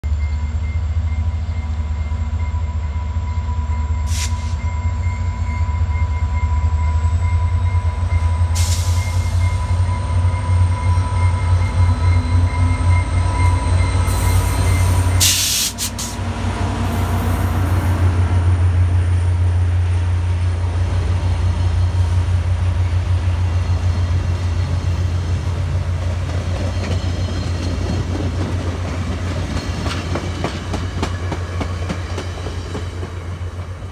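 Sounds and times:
diesel locomotive engine rumbling: 0.0 - 33.9
train wheels clattering on rails: 23.5 - 33.9.

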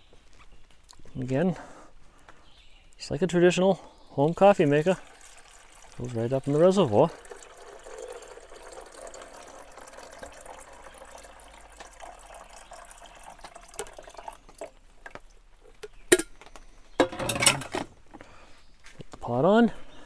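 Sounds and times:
water pouring from carafe: 4.2 - 15.4
glass carafe clattering: 15.9 - 16.3, 17.0 - 17.8.

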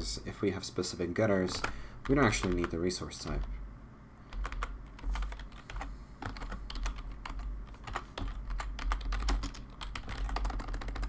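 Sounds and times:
low steady hum: 0.0 - 11.0
computer keyboard typing: 1.5 - 3.5, 4.3 - 11.0.

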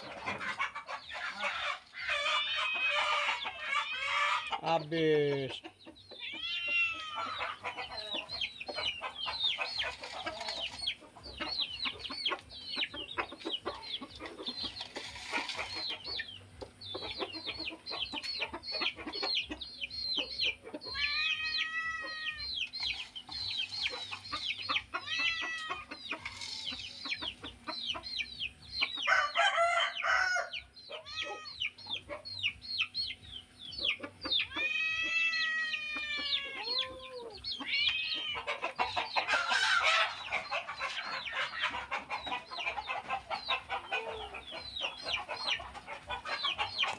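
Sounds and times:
chickens clucking: 0.0 - 46.9
rooster crowing: 29.1 - 31.5.

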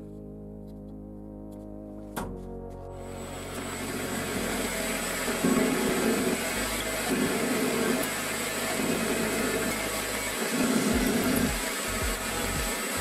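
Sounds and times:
lathe motor hum: 3.0 - 13.0
tool cutting metal rod: 3.8 - 13.0.

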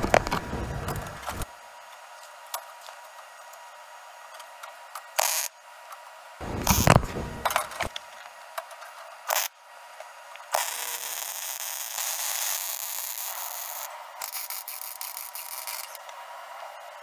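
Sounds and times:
welder arc hissing: 5.2 - 5.5, 6.4 - 7.8, 9.3 - 9.5, 10.6 - 16.0.

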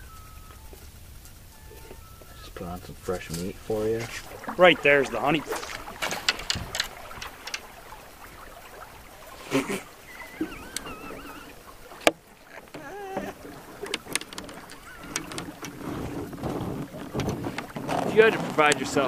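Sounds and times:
moving water: 0.0 - 19.0
wind: 0.0 - 19.0
knocks on boat: 12.0 - 19.0.

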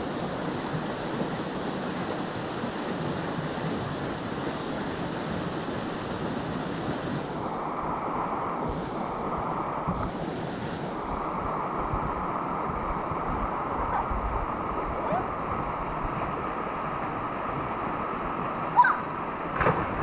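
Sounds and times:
river water rushing: 0.0 - 20.0
wind: 0.0 - 20.0
loud splash of diving: 19.5 - 20.0.

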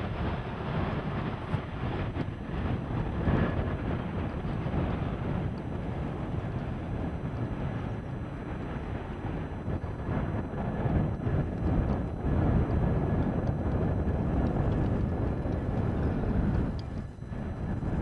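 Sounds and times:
helicopter rotors beating: 0.0 - 18.0.

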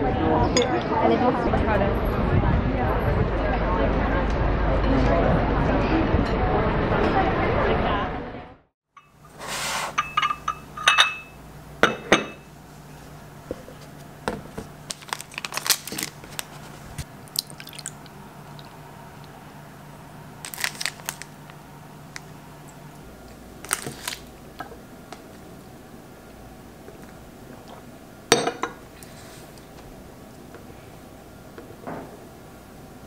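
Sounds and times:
low steady hum: 9.0 - 33.0
wrapper crinkling: 14.8 - 18.1, 20.4 - 22.3, 23.6 - 24.3.

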